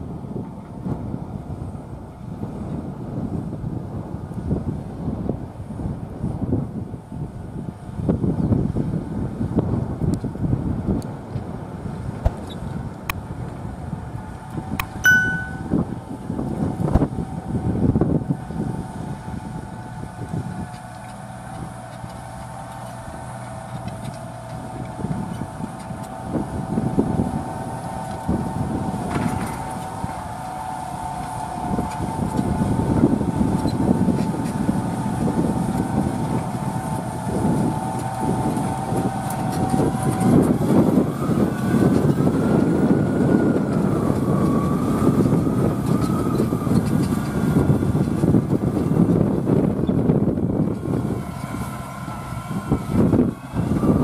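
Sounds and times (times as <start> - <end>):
tractor diesel engine rumbling: 0.0 - 54.0
high whine: 14.8 - 15.9.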